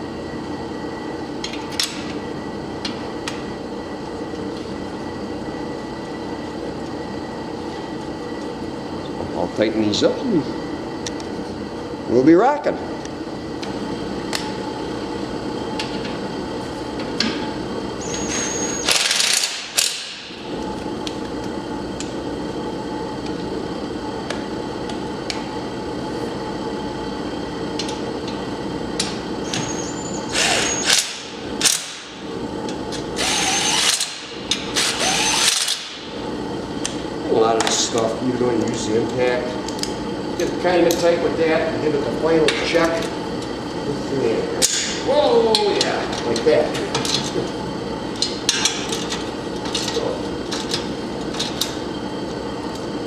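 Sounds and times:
steady background hum: 0:00.0 - 0:53.0
cordless impact driver bursts: 0:18.8 - 0:19.7, 0:30.3 - 0:31.8, 0:33.2 - 0:34.2, 0:34.8 - 0:35.9.

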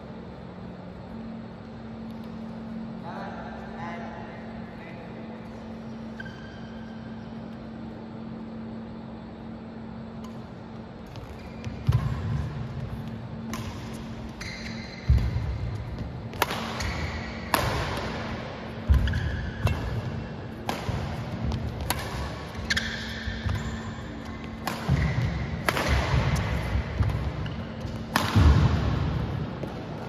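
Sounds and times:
shoe squeaks: 0:05.8 - 0:07.2, 0:11.2 - 0:11.8, 0:14.2 - 0:15.5, 0:18.9 - 0:19.8, 0:22.5 - 0:25.3
racket striking shuttlecock: 0:11.2 - 0:29.9.

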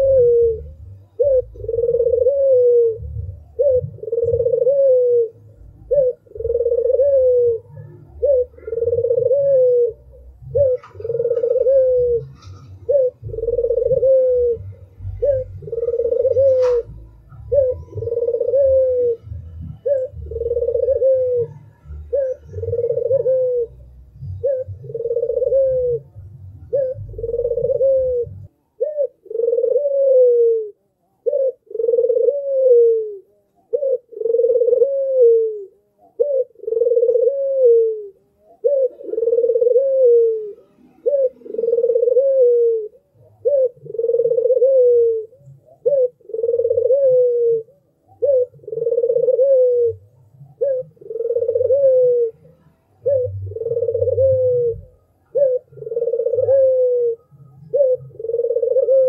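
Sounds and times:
dove cooing: 0:00.0 - 0:59.0
low rumble: 0:02.9 - 0:04.0.

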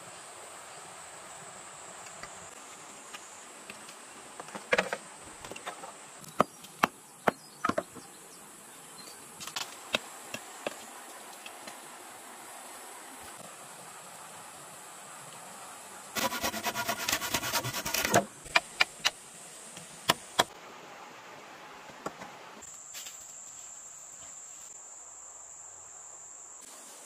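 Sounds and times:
wooden knocks of bamboo poles: 0:04.4 - 0:08.0.

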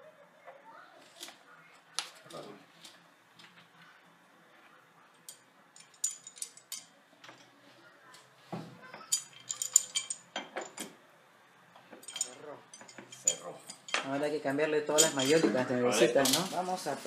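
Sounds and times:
metal tools clinking on tile: 0:05.2 - 0:07.5, 0:08.9 - 0:11.0, 0:11.9 - 0:14.2, 0:14.9 - 0:16.7.

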